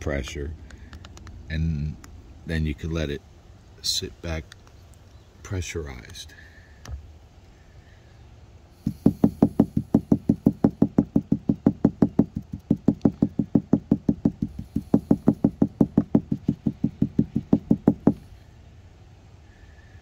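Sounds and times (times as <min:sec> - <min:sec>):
rapid even knocking: 0:08.8 - 0:18.2.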